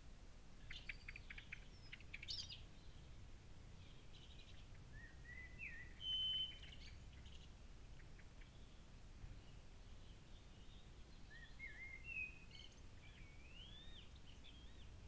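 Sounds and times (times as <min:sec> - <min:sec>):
low hiss: 0:00.0 - 0:15.0
bird whistling: 0:04.9 - 0:06.9, 0:11.3 - 0:14.8
bird chirps and clicks: 0:06.3 - 0:08.6.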